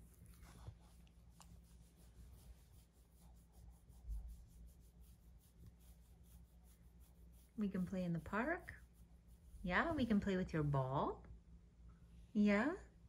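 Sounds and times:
hand scratching dog fur: 0.0 - 10.7.

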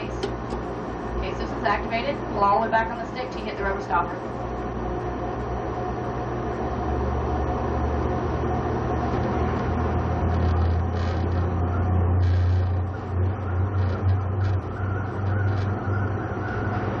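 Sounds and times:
centrifuge low rumble: 0.0 - 17.0.

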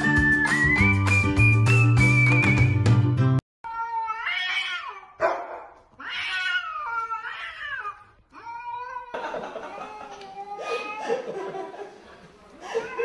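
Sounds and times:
music: 0.0 - 3.4
cats yowling: 3.7 - 5.2, 5.9 - 11.2.

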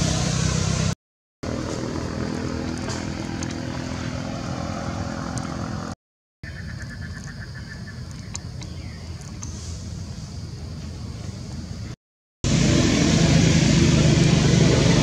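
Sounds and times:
motor engine running: 0.0 - 6.0, 12.4 - 15.0.

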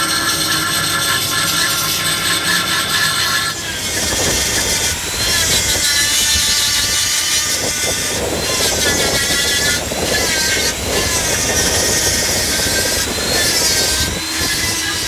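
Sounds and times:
die grinder grinding metal: 0.0 - 15.0.

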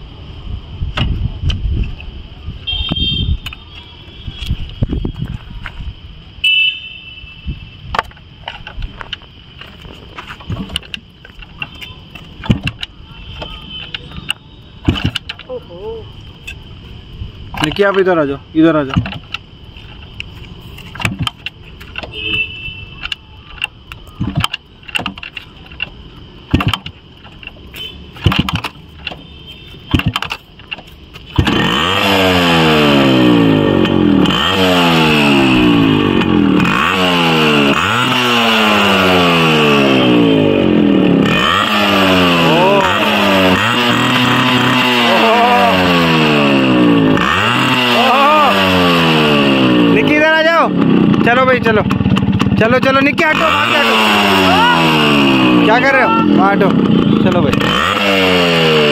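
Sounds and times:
motorcycle kick lever kicks: 0.9 - 2.0, 7.9 - 15.5, 18.8 - 20.1, 20.8 - 31.6, 51.8 - 53.0
two-stroke motorcycle engine revving: 17.5 - 19.5, 20.1 - 58.9.

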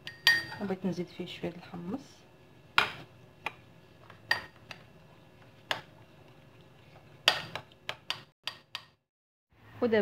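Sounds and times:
metal spoon clinking on ceramic bowl: 0.0 - 0.6, 4.3 - 4.7.

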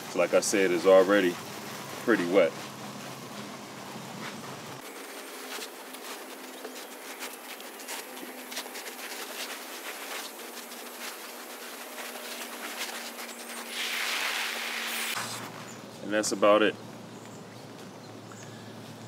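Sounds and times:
water sprinkling on wet soil: 0.0 - 16.4.

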